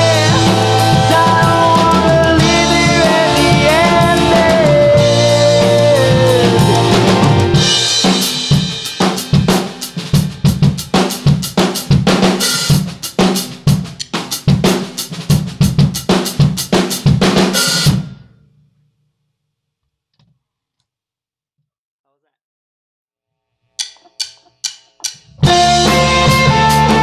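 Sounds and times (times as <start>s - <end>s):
live rock band playing: 0.0s - 17.5s, 25.2s - 27.0s
drum kit with crashing cymbals: 0.0s - 18.3s, 23.8s - 27.0s.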